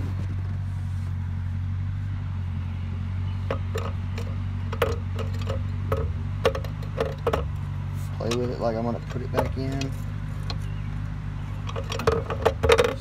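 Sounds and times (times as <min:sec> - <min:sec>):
diesel tractor engine idling: 0:00.0 - 0:13.0.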